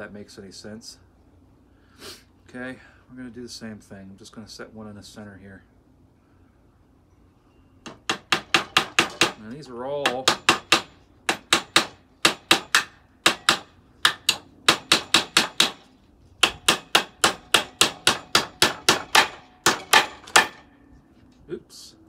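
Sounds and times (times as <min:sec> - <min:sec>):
hammer driving nails into wood: 0:07.9 - 0:15.8, 0:16.4 - 0:20.7.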